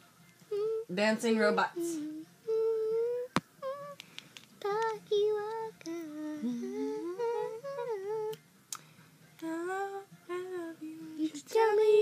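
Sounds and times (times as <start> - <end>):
girl humming: 0.5 - 0.9, 1.8 - 4.0, 5.3 - 8.4.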